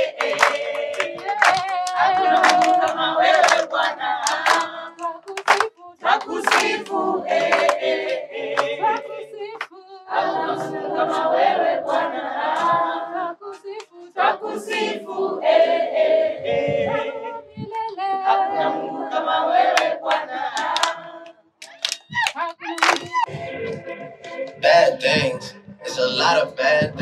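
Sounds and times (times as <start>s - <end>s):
hand claps: 0.0s - 9.8s, 19.7s - 21.0s, 21.6s - 23.2s
group singing without instruments: 0.0s - 21.4s, 22.9s - 27.0s.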